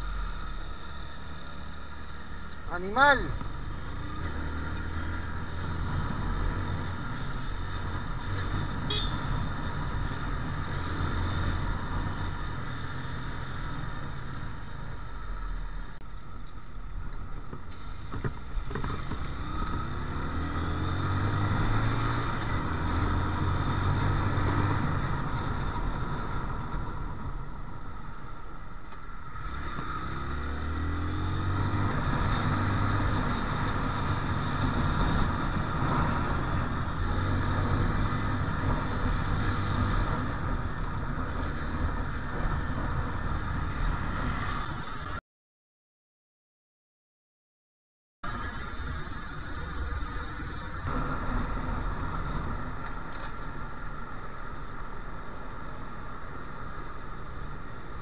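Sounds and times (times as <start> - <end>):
wind and road noise: 0.0 - 45.2, 48.2 - 58.0.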